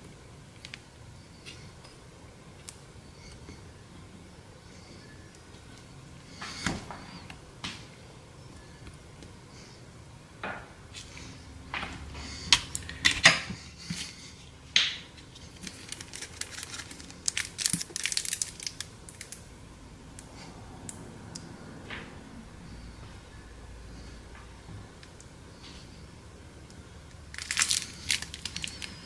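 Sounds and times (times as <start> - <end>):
foil pan clicking and crinkling: 15.5 - 19.4, 27.4 - 29.0.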